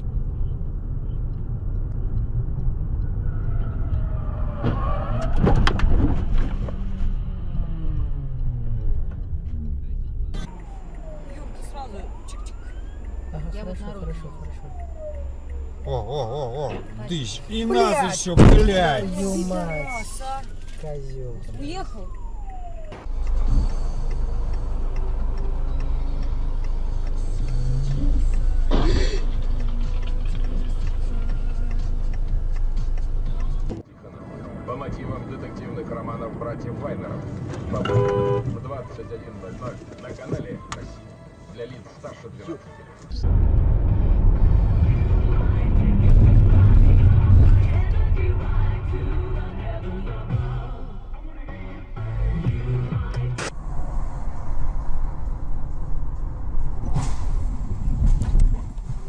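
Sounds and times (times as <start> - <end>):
light ticking: 0.0 - 4.2, 7.2 - 28.6
car road and engine rumble: 0.0 - 59.0.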